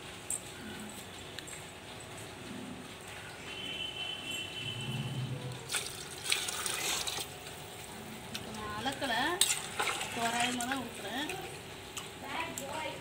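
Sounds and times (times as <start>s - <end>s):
water and rice sloshing in a pot: 4.6s - 13.0s.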